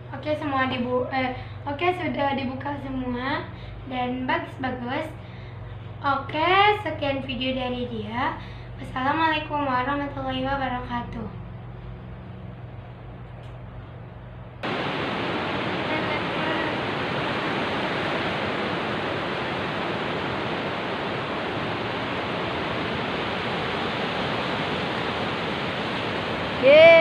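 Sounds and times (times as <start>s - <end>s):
waves breaking on beach: 14.6s - 27.0s.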